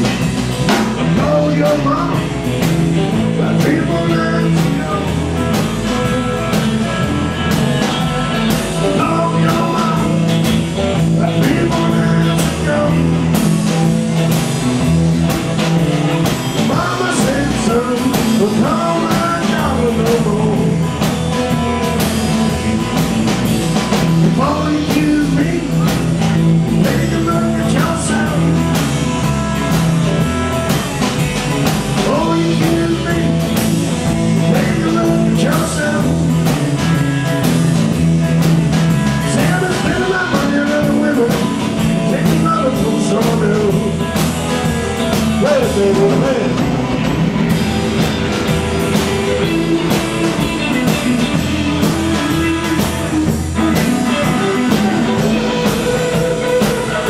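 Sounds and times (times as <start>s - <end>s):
drum kit: 0.0s - 57.0s
electric guitars: 0.0s - 57.0s
man singing into a microphone: 1.0s - 2.4s, 3.2s - 5.3s, 8.7s - 13.4s, 16.6s - 21.0s, 24.3s - 28.6s, 32.0s - 36.6s, 39.2s - 44.2s, 45.2s - 46.7s.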